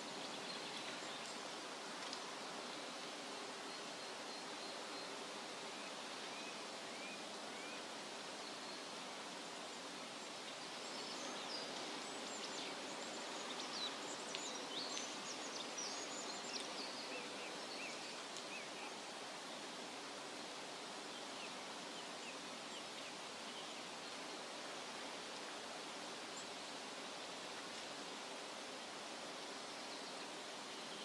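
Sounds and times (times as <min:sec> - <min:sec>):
songbirds chirping: 0:00.0 - 0:31.0
stream running over rocks: 0:00.0 - 0:31.0.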